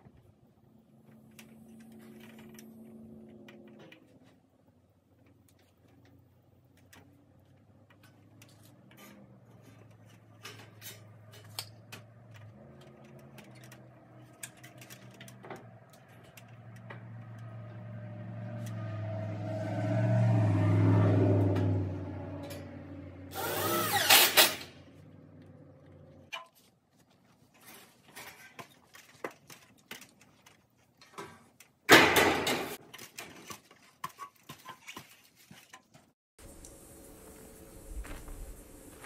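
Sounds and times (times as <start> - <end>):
low hum: 15.9 - 23.4
cordless drill motor whine: 23.3 - 24.2.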